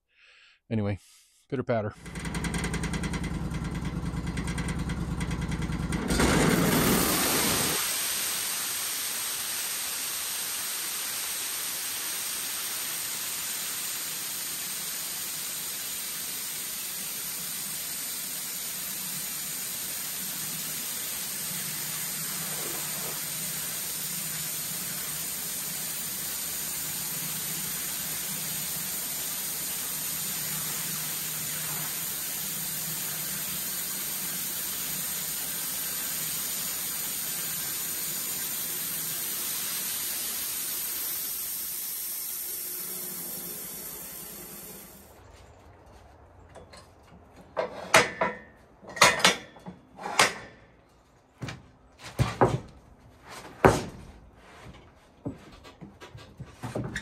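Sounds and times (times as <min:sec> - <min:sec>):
sawmill cutting wood: 0:02.0 - 0:08.2.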